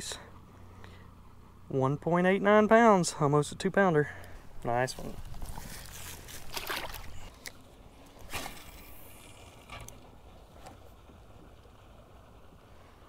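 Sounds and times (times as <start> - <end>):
water sloshing against boat: 4.5 - 12.2
splashes: 5.4 - 10.1.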